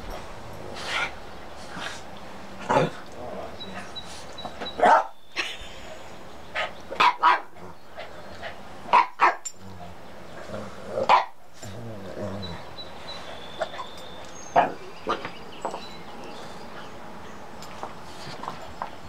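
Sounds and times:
small dogs barking: 0:04.6 - 0:05.6, 0:06.5 - 0:09.5, 0:11.0 - 0:11.4, 0:13.5 - 0:15.3.

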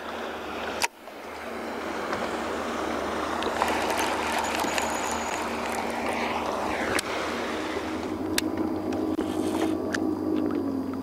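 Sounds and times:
water lapping against boat hull: 0:00.0 - 0:06.0
outboard motors humming: 0:00.0 - 0:11.0
wind: 0:00.0 - 0:11.0.

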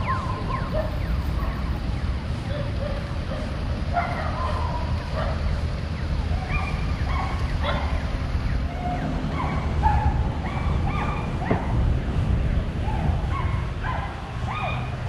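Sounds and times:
low rumble of street traffic: 0:00.0 - 0:15.0
dog yipping and whining: 0:09.3 - 0:11.6, 0:12.9 - 0:14.9.

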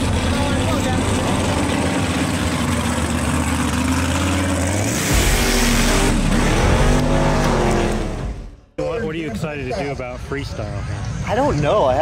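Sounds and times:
truck engine revving: 0:00.0 - 0:08.8.

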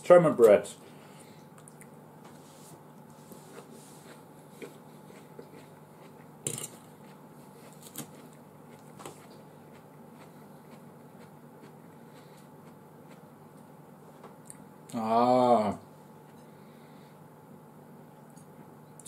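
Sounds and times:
faint steady hum: 0:00.0 - 0:19.0
cutlery clinking against a dish: 0:06.5 - 0:06.8.

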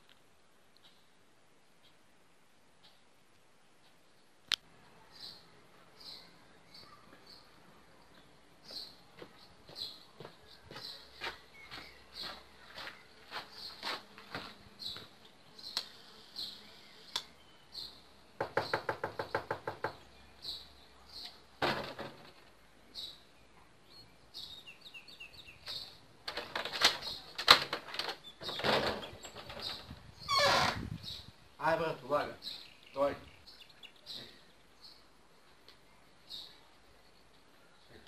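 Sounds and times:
footsteps on gravel: 0:08.7 - 0:15.1
knocking on wooden door: 0:18.4 - 0:20.0.

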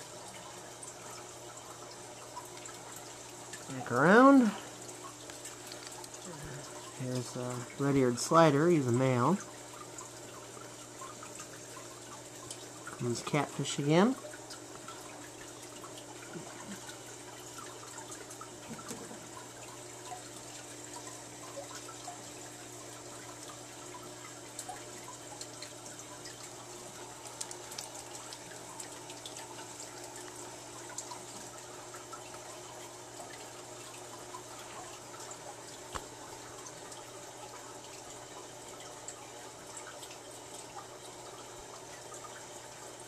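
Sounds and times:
small water drips: 0:00.0 - 0:43.0
water trickling into tank: 0:00.0 - 0:43.0.

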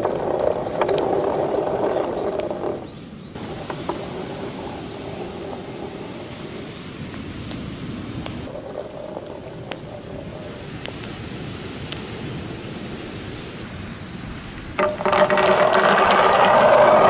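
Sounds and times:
balls rolling down plastic gutter: 0:00.0 - 0:06.6, 0:08.5 - 0:10.6, 0:14.8 - 0:17.0
wind: 0:00.0 - 0:17.0
surf hiss: 0:05.4 - 0:14.8.

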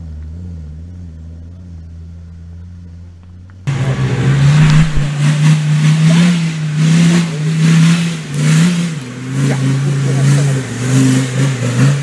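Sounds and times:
diesel engine running under load: 0:00.0 - 0:12.0
surges of rushing noise: 0:03.7 - 0:10.8.

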